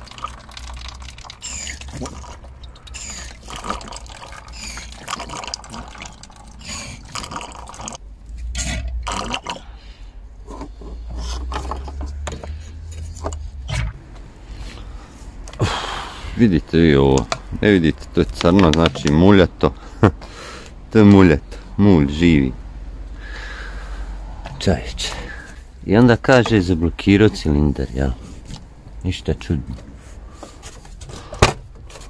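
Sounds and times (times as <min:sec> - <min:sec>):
fluid slurping and gurgling: 0:00.0 - 0:08.0, 0:08.6 - 0:09.7
squeeze-bulb pump: 0:00.0 - 0:08.0.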